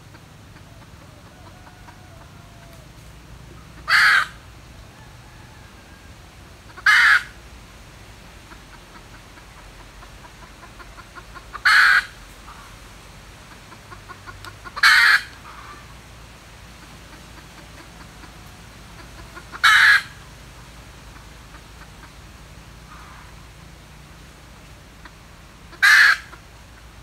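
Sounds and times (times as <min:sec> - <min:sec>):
hen cackling: 0:00.0 - 0:07.5, 0:08.3 - 0:23.9, 0:24.6 - 0:27.0
soft hen clucks: 0:00.0 - 0:07.5, 0:08.1 - 0:27.0.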